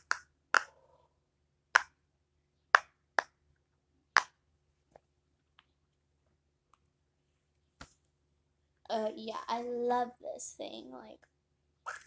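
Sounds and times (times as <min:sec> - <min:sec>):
fidget toy bubbles popping: 0:00.0 - 0:00.7.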